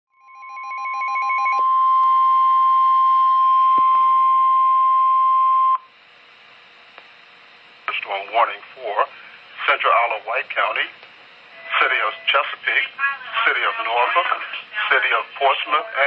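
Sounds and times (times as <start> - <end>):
steady high alarm tone: 0.1 - 5.9, 11.5 - 16.0
faint radio hiss: 5.9 - 16.0.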